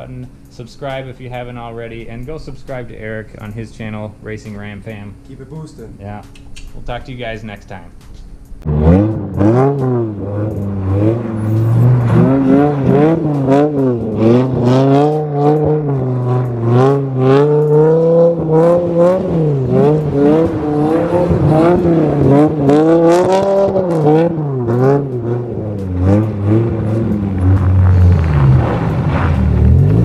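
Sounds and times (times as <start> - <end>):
car engine revving: 0.0 - 6.0, 7.2 - 30.0
tyres spinning on snow: 17.0 - 30.0.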